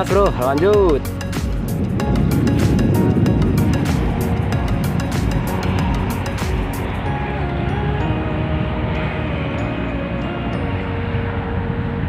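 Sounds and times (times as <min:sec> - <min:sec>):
music with fast ticking beat: 0:00.0 - 0:08.1.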